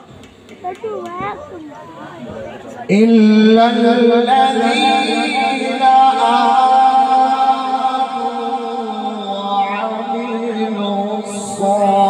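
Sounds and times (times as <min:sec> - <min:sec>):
man reciting melodically into microphone: 0:02.8 - 0:12.0.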